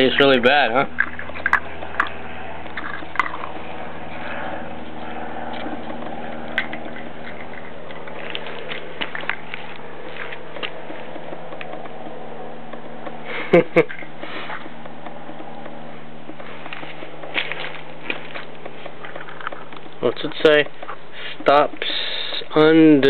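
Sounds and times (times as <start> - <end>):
puppy chewing: 0.0 - 13.2, 13.9 - 22.5
teeth clicking: 5.5 - 22.7.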